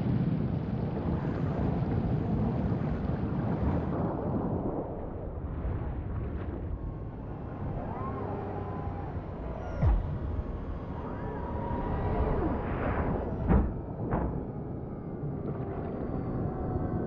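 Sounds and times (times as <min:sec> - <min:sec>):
faint rising and falling tone: 0:06.8 - 0:17.0.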